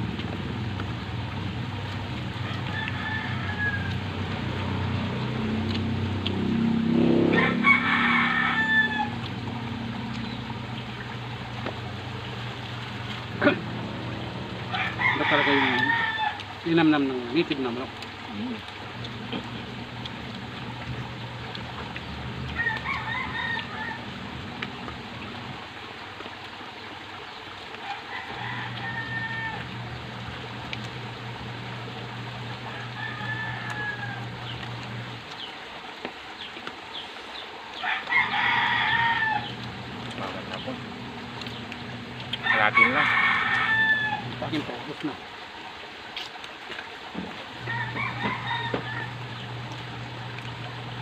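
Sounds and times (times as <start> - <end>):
steady low hum: 0.0 - 27.2, 28.6 - 35.6, 38.2 - 45.4, 47.2 - 51.0
rooster crowing: 2.3 - 5.5, 6.9 - 10.6, 13.4 - 16.5, 22.5 - 25.0, 27.8 - 30.0, 32.6 - 34.6, 37.8 - 44.7, 47.6 - 49.7.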